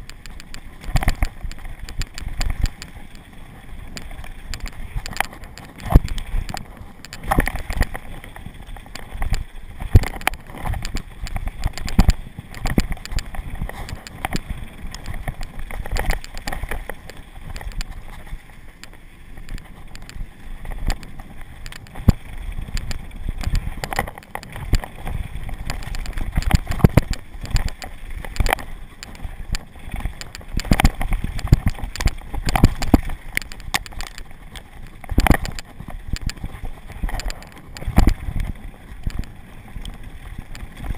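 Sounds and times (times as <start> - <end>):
bike knocks and rattles: 0.0 - 40.9.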